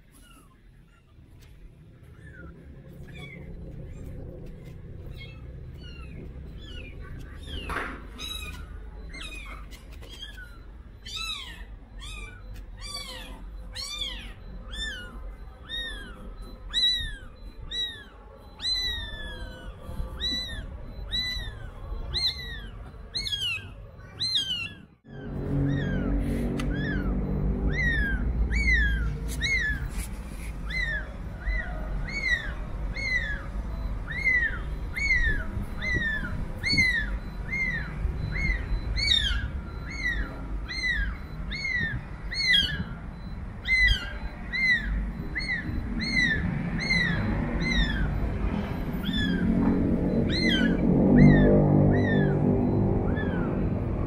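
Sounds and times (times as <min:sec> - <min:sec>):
kitten mewing: 0:05.1 - 0:48.1.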